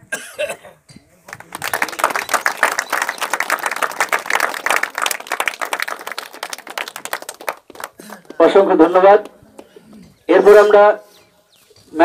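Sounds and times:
crowd clapping: 1.3s - 8.5s.

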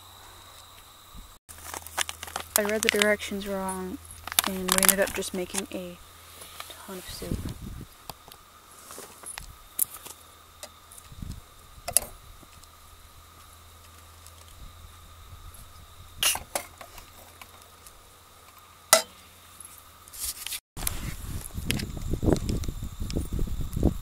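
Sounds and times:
metal pot clanking on grate: 18.9s - 19.2s.

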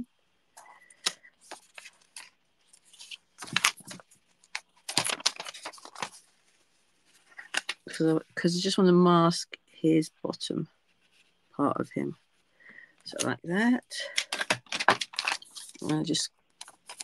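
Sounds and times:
paper rustling and crinkling: 0.6s - 8.2s, 14.0s - 17.0s.

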